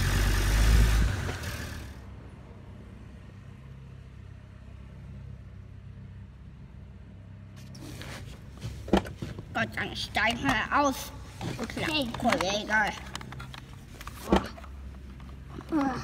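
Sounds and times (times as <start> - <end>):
toy car motor whirring: 0.0 - 2.0.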